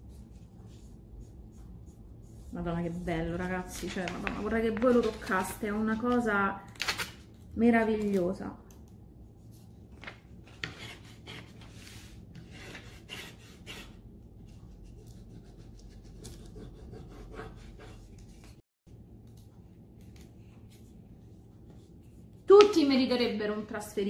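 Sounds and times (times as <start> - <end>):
soft rubbing strokes: 0.0 - 3.5.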